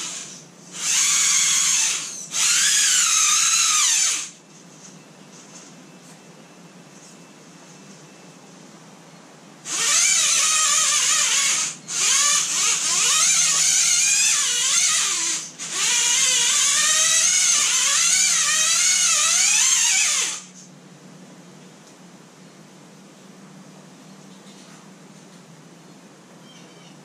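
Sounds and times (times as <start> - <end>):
rc car motor whining: 0.0 - 4.4, 9.7 - 20.6.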